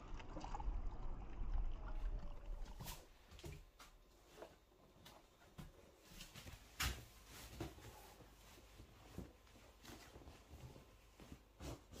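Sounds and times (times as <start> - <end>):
soft handling sounds: 2.8 - 12.0.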